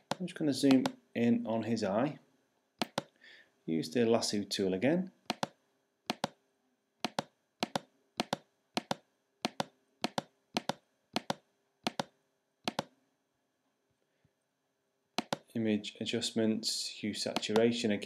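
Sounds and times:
computer mouse clicking: 0:02.8 - 0:03.1, 0:05.3 - 0:06.4, 0:07.0 - 0:12.9, 0:15.2 - 0:15.5.

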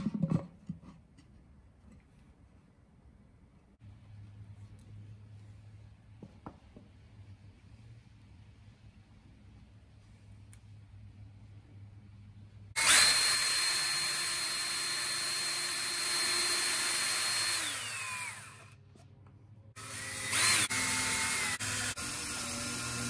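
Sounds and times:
cordless drill whining: 0:12.8 - 0:18.8, 0:19.8 - 0:23.0.

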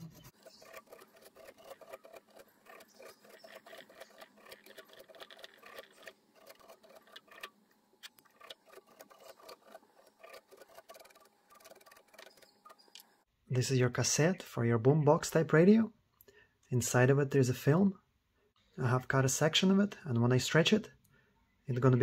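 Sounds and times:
velcro scratching fur: 0:00.0 - 0:07.5, 0:08.2 - 0:12.8.

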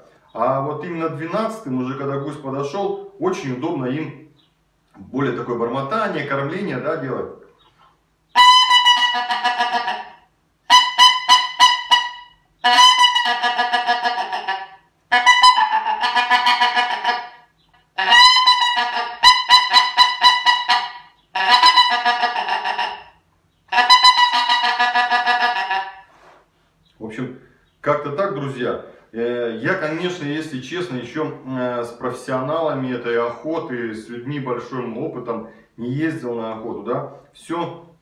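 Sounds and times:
goose call clucking honks: 0:08.4 - 0:26.1.

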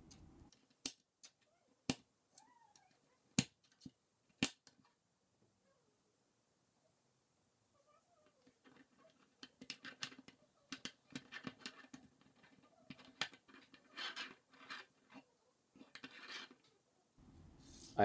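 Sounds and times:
plastic sliding on plastic: 0:08.2 - 0:16.8
plastic pieces clicking together: 0:08.4 - 0:15.2.

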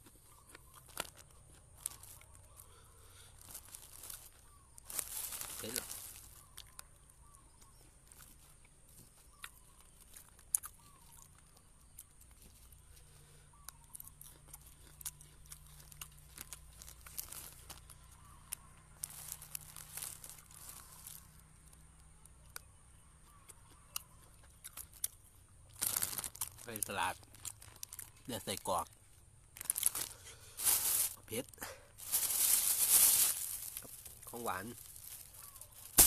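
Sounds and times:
person chewing food: 0:00.0 - 0:04.6, 0:06.2 - 0:21.3, 0:22.4 - 0:30.6
soft crunches and mouth clicks: 0:00.0 - 0:36.0
plastic bag crinkling: 0:00.9 - 0:02.6, 0:03.4 - 0:06.8, 0:16.3 - 0:18.1, 0:19.0 - 0:21.3, 0:25.8 - 0:28.8, 0:29.5 - 0:31.4, 0:32.0 - 0:36.0.

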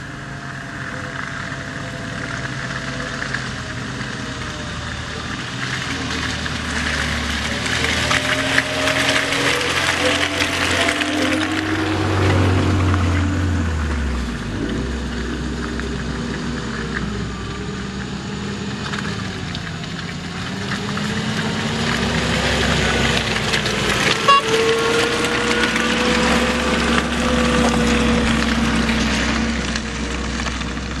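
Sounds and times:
engine running at low revs: 0:00.0 - 0:31.0.

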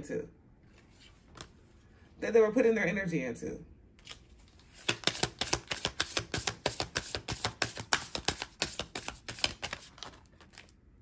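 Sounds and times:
cards being shuffled: 0:04.0 - 0:10.8.

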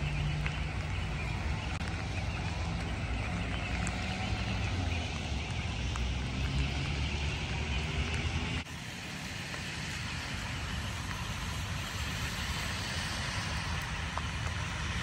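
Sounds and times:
outdoor hiss: 0:08.7 - 0:15.0.

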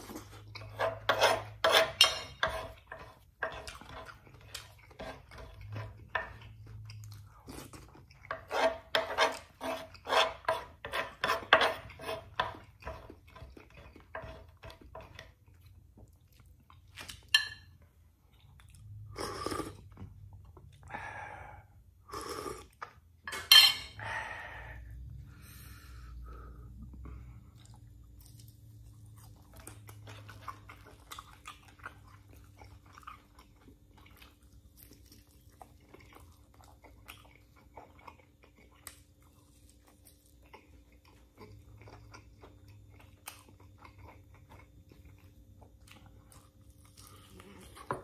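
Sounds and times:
metal spoon scraping wooden board: 0:00.6 - 0:04.1, 0:08.3 - 0:13.0.

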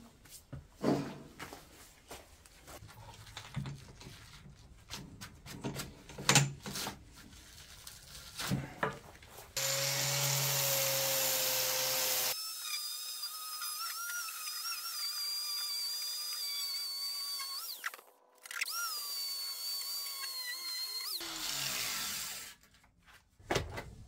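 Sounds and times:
angle grinder whining on steel: 0:09.6 - 0:22.6.

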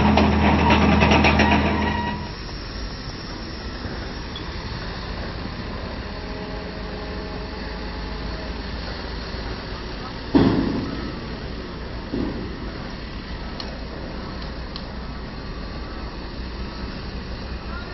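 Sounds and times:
diesel engine rumbling: 0:00.0 - 0:17.9
loud knock: 0:10.4 - 0:11.2.

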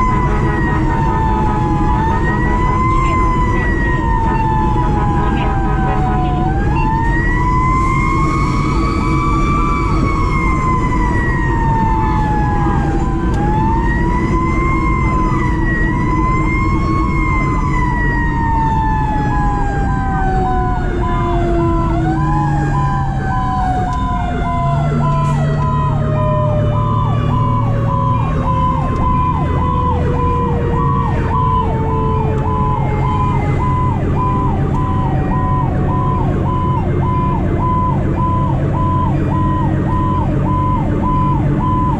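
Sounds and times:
diesel engine drone: 0:00.0 - 0:41.9
mechanical siren wailing: 0:00.0 - 0:41.9.

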